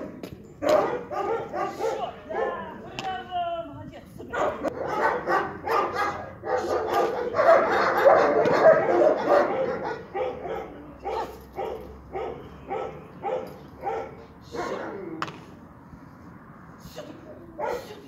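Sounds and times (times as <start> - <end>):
dog barking: 0.6 - 2.7, 4.3 - 15.0, 17.6 - 18.0.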